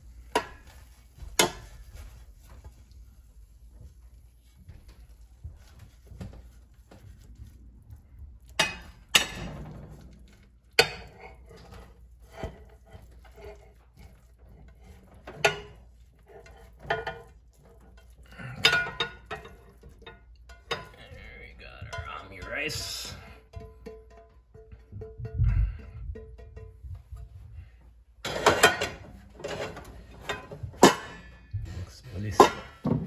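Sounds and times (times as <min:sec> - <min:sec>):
spatula clinking on a ceramic plate: 0:10.8 - 0:21.0.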